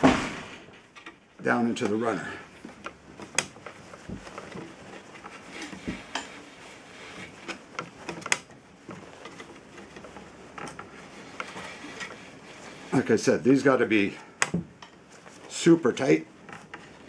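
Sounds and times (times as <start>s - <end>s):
line rustling against wood: 0.0s - 17.0s.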